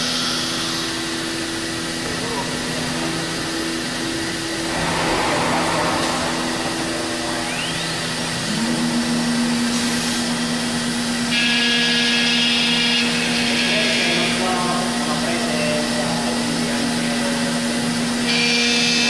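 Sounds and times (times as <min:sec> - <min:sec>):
cnc router humming: 0:00.0 - 0:19.0
higher whine: 0:00.7 - 0:11.4
rising whine: 0:00.9 - 0:11.2.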